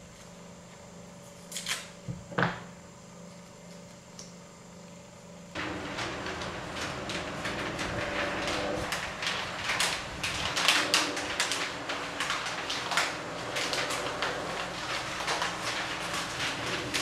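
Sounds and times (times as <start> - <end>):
electric fan humming: 0.0 - 17.0
newspaper rustling and flapping: 5.6 - 17.0.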